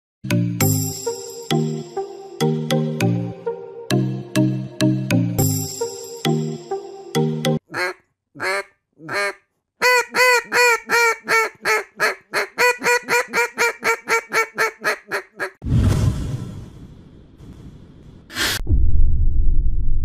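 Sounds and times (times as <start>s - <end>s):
duck call quacks: 7.6s - 15.5s
loud whoosh: 15.6s - 20.0s.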